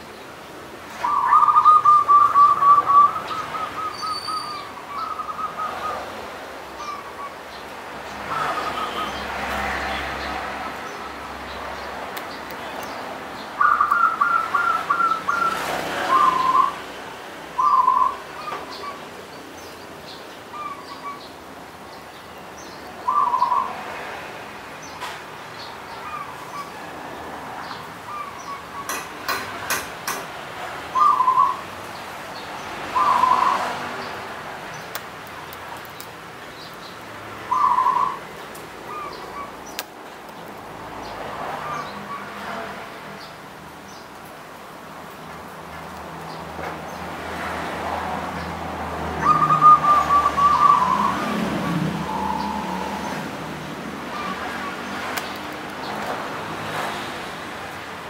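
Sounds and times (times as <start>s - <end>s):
dove cooing: 1.0s - 6.0s, 13.6s - 16.8s, 33.0s - 33.7s, 37.5s - 38.2s, 49.2s - 51.4s
sharp clicks: 34.8s - 36.2s.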